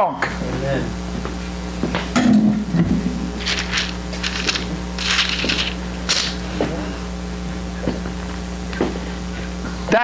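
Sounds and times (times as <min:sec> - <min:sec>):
pages turning: 0:03.4 - 0:06.4.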